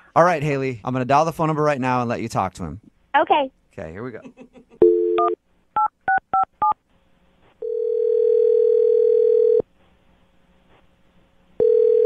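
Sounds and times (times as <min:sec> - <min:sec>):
phone ringback tone: 0:07.6 - 0:09.6, 0:11.6 - 0:12.0.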